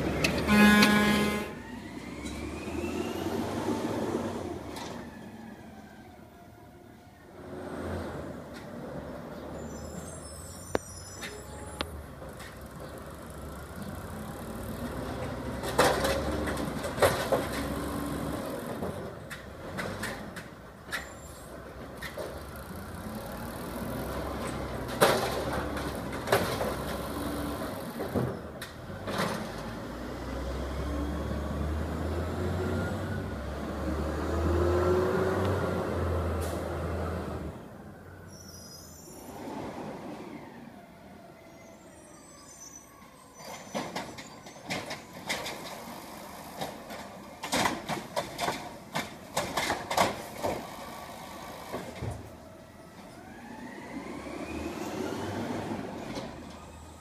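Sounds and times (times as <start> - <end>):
diesel engine revving: 28.9 - 37.6.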